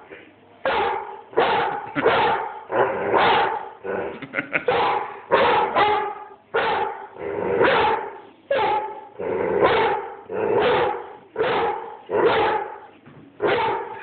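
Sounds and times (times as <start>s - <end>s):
dog barking: 0.6s - 3.8s, 4.6s - 14.0s.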